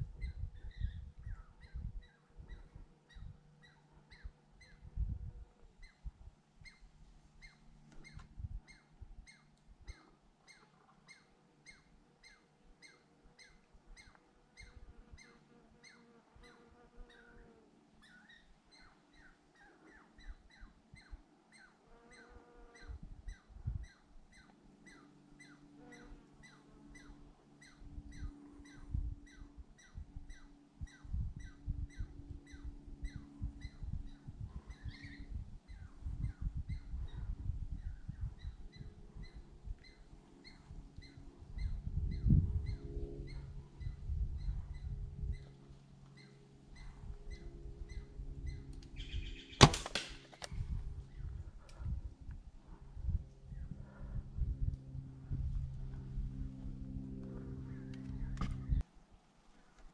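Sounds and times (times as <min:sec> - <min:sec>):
squirrel calling: 0:07.4 - 0:17.2, 0:46.2 - 0:49.7
low thumps and rumbles: 0:50.5 - 0:58.8.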